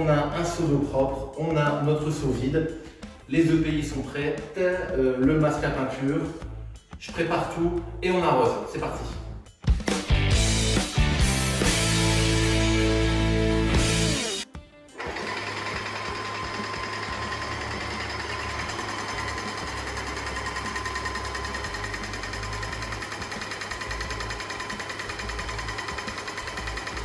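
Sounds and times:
music: 0:00.0 - 0:27.0
power tool clattering: 0:13.8 - 0:27.0.

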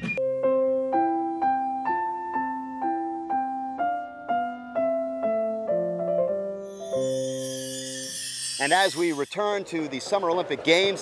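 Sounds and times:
slow piano-like keyboard melody: 0:00.2 - 0:09.2.

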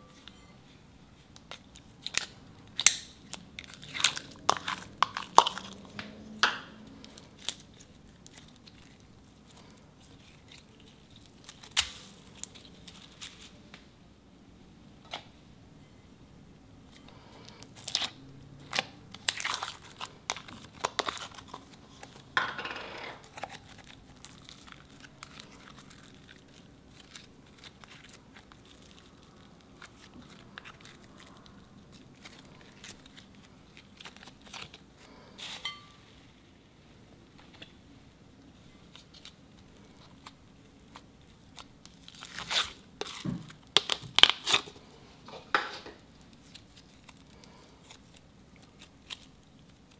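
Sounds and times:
slime stretching: 0:01.2 - 0:13.6, 0:17.4 - 0:22.4, 0:23.0 - 0:35.6, 0:38.8 - 0:44.9, 0:46.0 - 0:49.9
slime tearing peel: 0:10.1 - 0:13.5, 0:17.5 - 0:22.3, 0:38.9 - 0:44.8, 0:46.0 - 0:49.9.

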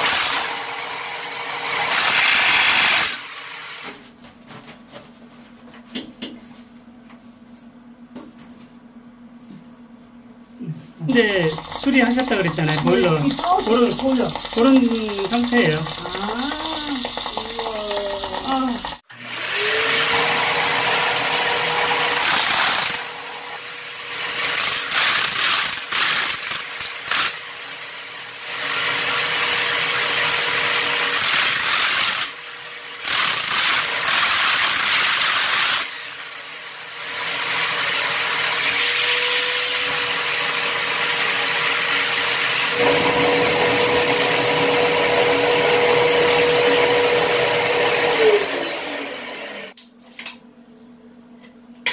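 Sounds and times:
hammer drill chiseling concrete: 0:00.0 - 0:03.8, 0:11.1 - 0:49.7
wet-dry vacuum running: 0:11.0 - 0:24.6, 0:36.3 - 0:49.8.

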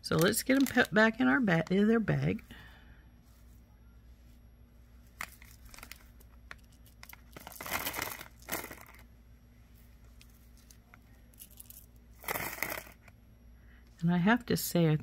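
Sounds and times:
plastic bag crinkling: 0:00.1 - 0:01.7, 0:05.2 - 0:09.1, 0:10.5 - 0:13.1
beads clicking together: 0:11.3 - 0:13.1.

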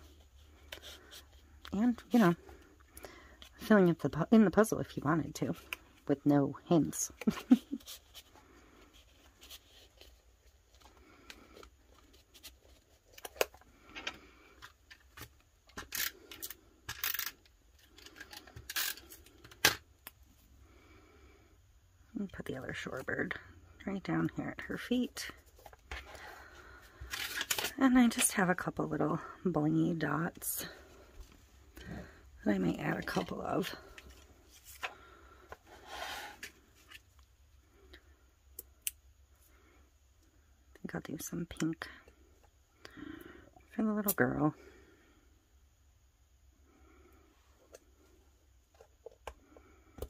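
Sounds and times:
paper rustling and scraping: 0:35.6 - 0:37.0.

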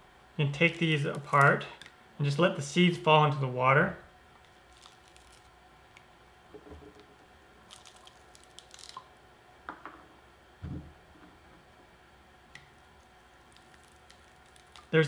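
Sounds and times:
fruit rind crackling and tearing: 0:00.6 - 0:01.9, 0:04.4 - 0:06.1, 0:07.0 - 0:09.1, 0:12.6 - 0:15.0.

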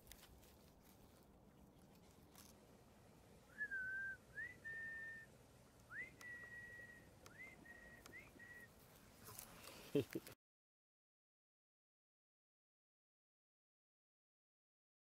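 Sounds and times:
person whistling: 0:03.5 - 0:05.3, 0:05.9 - 0:08.7.

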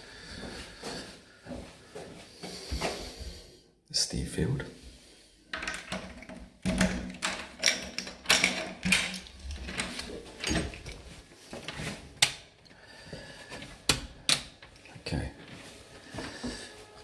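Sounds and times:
irregular clicks and knocks: 0:05.5 - 0:12.7, 0:13.6 - 0:14.9.

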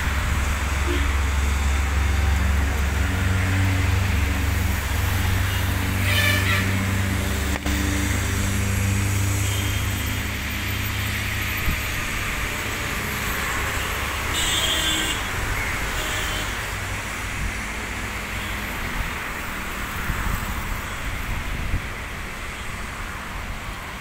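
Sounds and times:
jet engines rushing: 0:00.0 - 0:06.0, 0:06.6 - 0:14.3.

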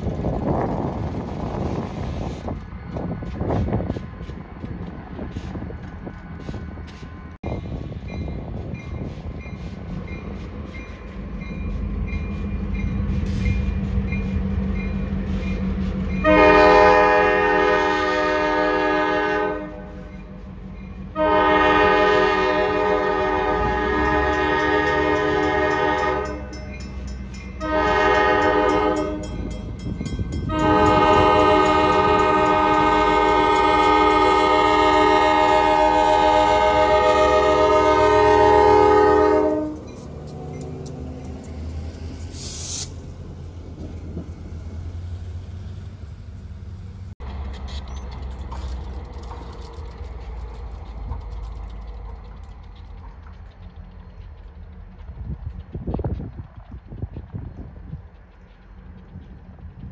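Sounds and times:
diesel locomotive engine: 0:00.0 - 0:59.9
train horn blasts: 0:16.2 - 0:20.1, 0:21.1 - 0:26.7, 0:27.6 - 0:29.5, 0:30.3 - 0:40.0.

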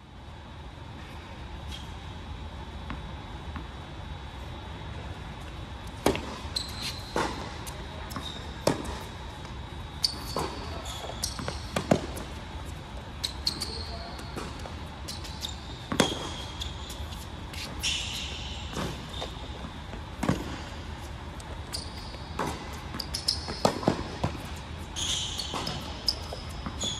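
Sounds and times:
sneakers squeaking: 0:01.0 - 0:26.9
racket hitting tennis ball: 0:07.1 - 0:07.8, 0:08.6 - 0:09.2, 0:11.7 - 0:12.3, 0:20.2 - 0:20.7, 0:23.5 - 0:24.5
tennis ball bouncing: 0:07.1 - 0:09.1, 0:10.2 - 0:12.3, 0:15.9 - 0:16.4, 0:19.6 - 0:20.7, 0:22.4 - 0:24.5.

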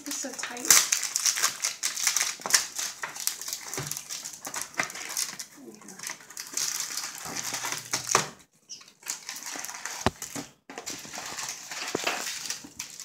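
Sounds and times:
foil packs crinkling: 0:00.0 - 0:13.0
packs tapping on table: 0:09.9 - 0:12.9.

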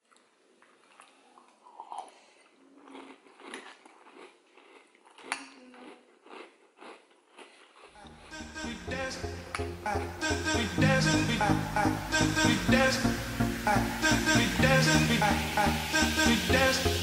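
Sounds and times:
cereal crunching: 0:00.5 - 0:08.4.

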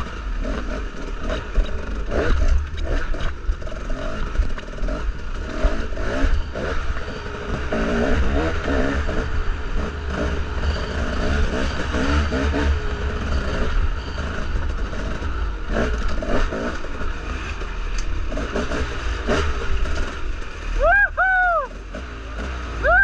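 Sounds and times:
dirt bike engine revving: 0:00.0 - 0:23.0
loud squeals: 0:20.7 - 0:21.8.

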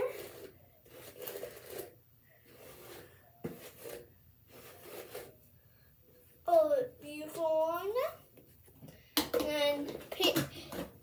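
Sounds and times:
hairbrush brushing hair: 0:00.0 - 0:05.5.

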